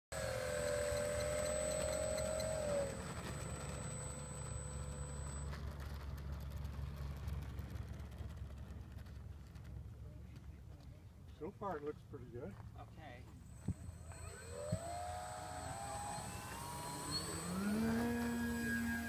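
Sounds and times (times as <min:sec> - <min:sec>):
model plane motor whining: 0:00.1 - 0:06.6, 0:13.4 - 0:19.0.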